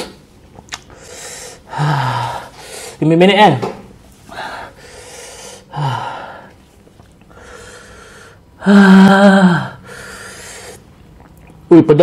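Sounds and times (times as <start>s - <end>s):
man breathing hard: 0.9s - 3.0s, 4.3s - 6.6s, 7.3s - 10.8s
man groaning: 1.7s - 2.5s, 8.6s - 9.8s.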